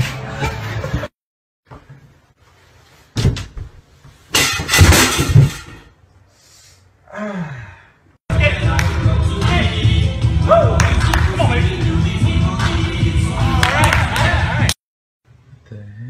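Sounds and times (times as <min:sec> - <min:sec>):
clattering crash against bathtub: 0:04.4 - 0:05.9.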